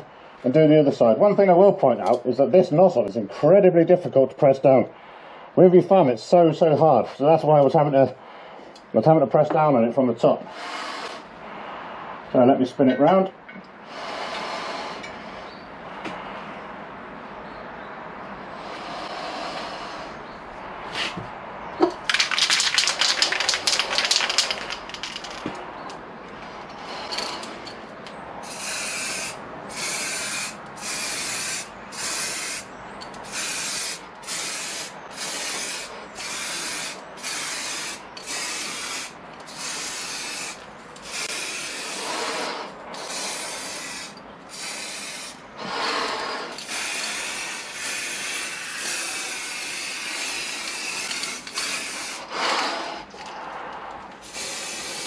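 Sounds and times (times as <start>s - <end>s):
rapid clattering: 22.0s - 25.6s
aerosol spray hissing bursts: 28.4s - 45.4s, 46.6s - 52.8s, 54.2s - 55.0s.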